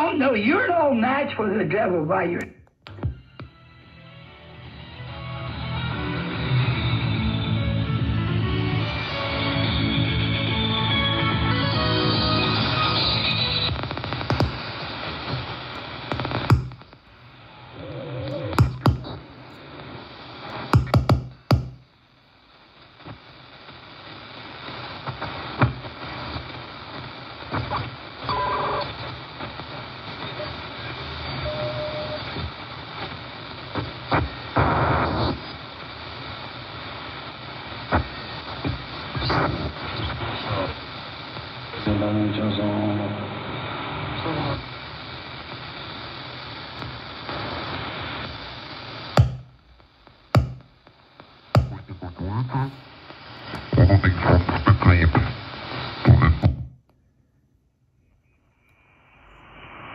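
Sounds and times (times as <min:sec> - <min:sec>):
shortwave band noise: 0:10.8 - 0:22.0, 0:47.3 - 0:56.8
radio signal: 0:12.1 - 0:56.7, 0:58.9 - 0:59.9
tuning clicks: 0:14.0 - 0:14.8, 0:15.7 - 0:17.0, 0:18.3 - 0:19.6, 0:20.5 - 0:21.9, 0:49.2 - 0:50.8, 0:51.6 - 0:52.0
radio whistle: 0:30.1 - 0:32.4.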